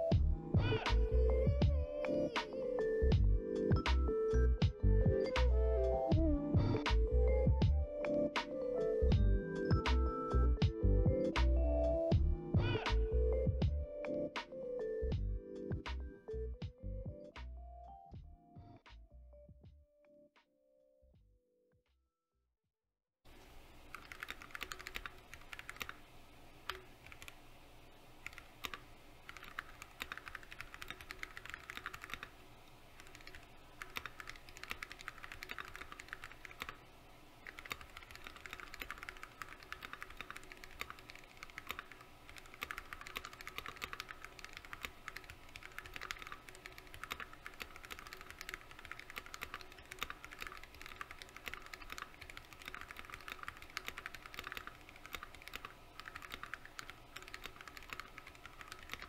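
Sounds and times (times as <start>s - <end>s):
mechanical keyboard typing: 23.9s - 26.0s, 26.7s - 27.4s, 28.2s - 32.3s, 33.0s - 36.8s, 37.4s - 59.0s.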